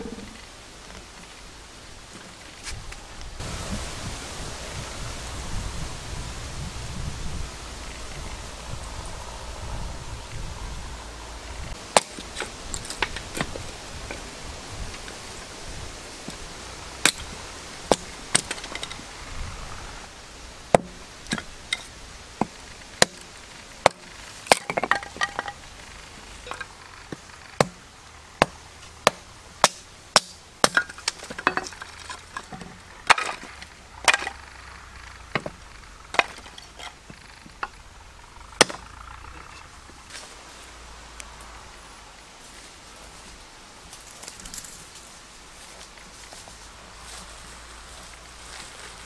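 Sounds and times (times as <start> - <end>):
blade chopping into wood: 11.9 - 13.6, 20.7 - 21.5, 22.4 - 25.4, 27.6 - 27.8.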